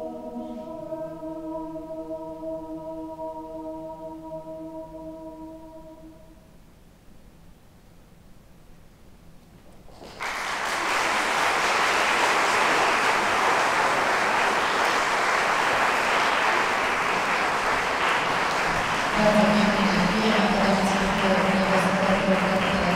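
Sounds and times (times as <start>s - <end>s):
audience applause: 9.9s - 22.9s.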